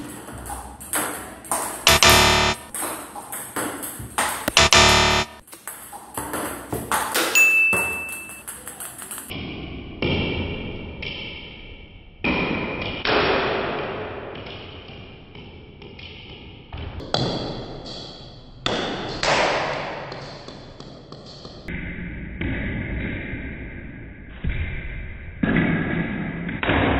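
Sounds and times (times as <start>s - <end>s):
ping-pong ball hits: 0.1s - 9.3s.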